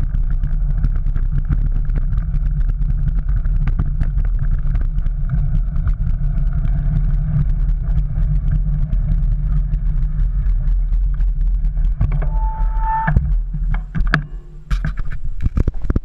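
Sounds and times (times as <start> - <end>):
bike clicks and rattles: 0.0 - 12.3
wind rumble on microphone: 0.0 - 16.0.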